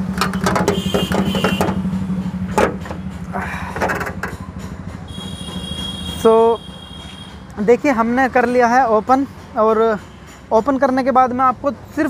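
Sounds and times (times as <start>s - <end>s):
metallic clanks: 0.0s - 8.2s
car engine idling: 0.0s - 10.0s.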